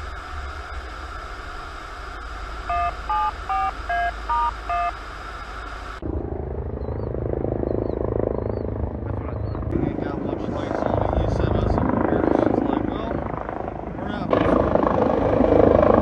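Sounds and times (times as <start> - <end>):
helicopter rumble: 0.0 - 16.0
low engine noise: 0.0 - 16.0
radio alert beeps: 2.6 - 5.0.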